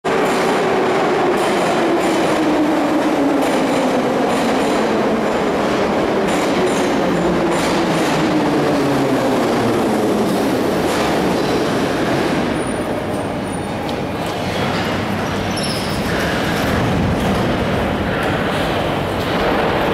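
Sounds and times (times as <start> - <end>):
wheels rumbling on rails: 0.1 - 19.9.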